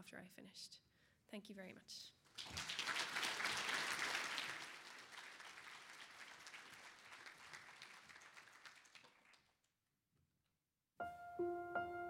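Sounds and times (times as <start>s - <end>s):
audience applauding: 2.3s - 9.6s.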